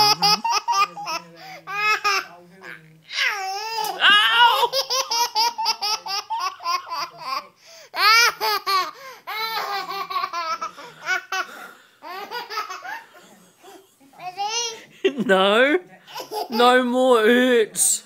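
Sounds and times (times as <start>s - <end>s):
toddler laughing: 0.0s - 1.2s.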